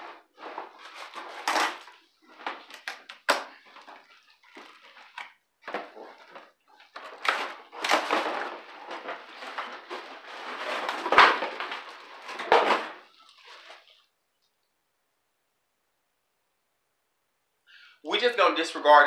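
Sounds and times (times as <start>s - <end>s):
cardboard and plastic rustling: 0.0s - 14.2s.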